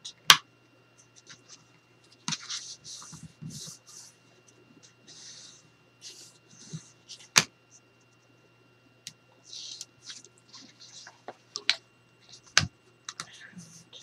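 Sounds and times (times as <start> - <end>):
paper rustling and scraping: 1.2 - 4.2, 9.4 - 11.6.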